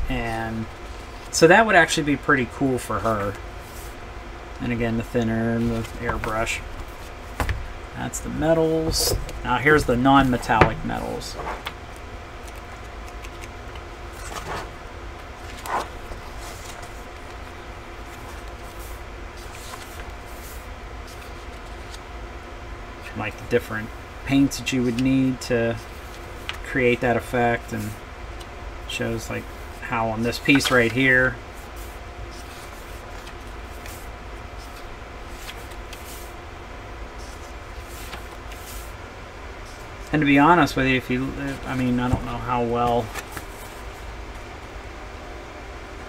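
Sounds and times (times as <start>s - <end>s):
room hum: 0.0s - 46.0s
book pages rustling: 5.0s - 7.6s, 8.4s - 14.7s, 15.4s - 22.0s, 30.3s - 31.0s, 31.6s - 36.3s, 37.2s - 39.0s, 41.4s - 44.1s.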